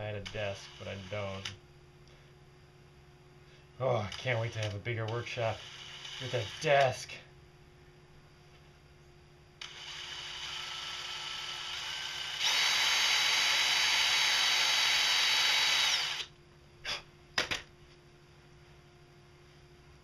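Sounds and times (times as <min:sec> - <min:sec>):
cordless drill boring: 0:05.5 - 0:06.9, 0:09.6 - 0:16.3.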